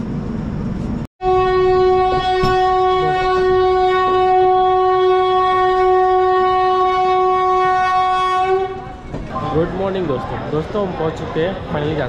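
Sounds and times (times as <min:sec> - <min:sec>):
train horn long note: 0:01.2 - 0:09.0.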